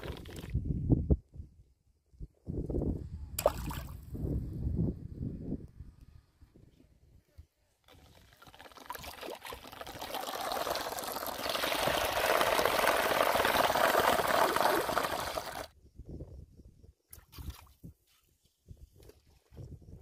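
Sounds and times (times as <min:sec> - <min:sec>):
water splashing and churning: 0:07.9 - 0:15.7.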